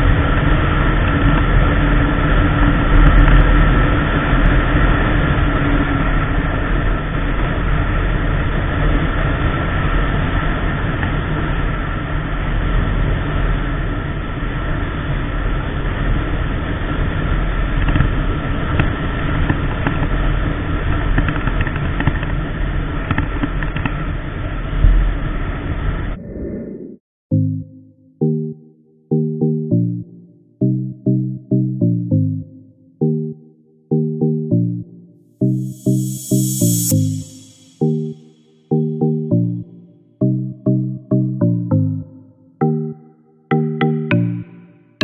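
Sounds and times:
wind rush over microphone: 0.0 - 27.0.

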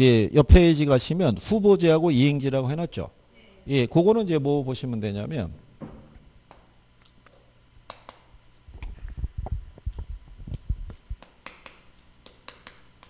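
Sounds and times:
chalk tapping on blackboard: 10.9 - 13.0.

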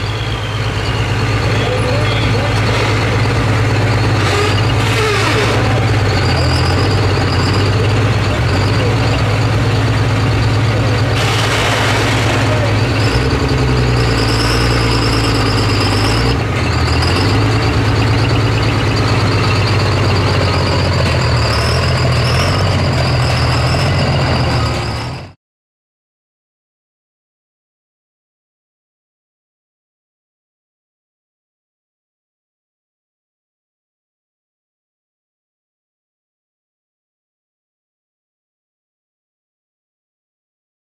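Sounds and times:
diesel truck engine drone: 0.0 - 25.4.

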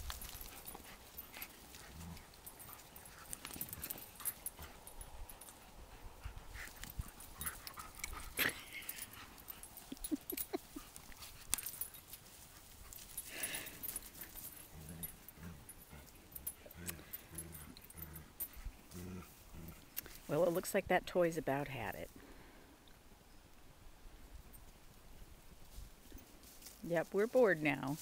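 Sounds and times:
dogs chewing and tugging fabric: 0.0 - 20.6
rustling and scuffling: 0.0 - 20.7, 24.5 - 28.0.

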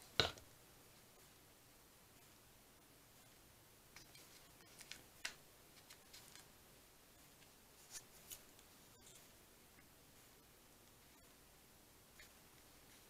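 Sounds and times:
faint ticks and paper rustles: 3.2 - 6.5.

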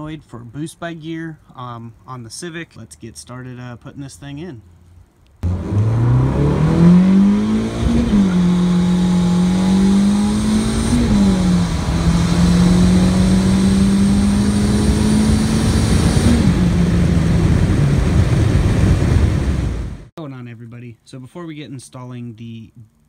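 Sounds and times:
car engine at full throttle: 5.4 - 20.1.

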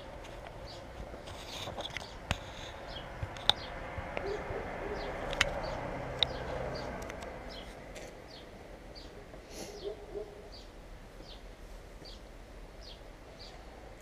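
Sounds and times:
small birds chirping: 0.0 - 14.0
low cooing: 4.2 - 5.3.

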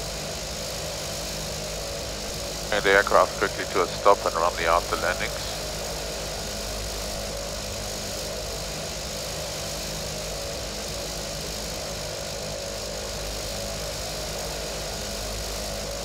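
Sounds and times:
turboprop engine humming: 1.7 - 7.3.

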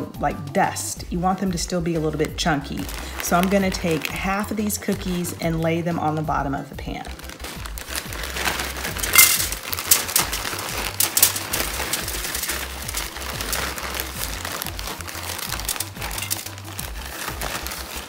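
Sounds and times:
background music: 0.0 - 18.0
plastic bag crinkling: 1.2 - 18.0
cookie chunks rattling onto pan: 7.8 - 18.0.

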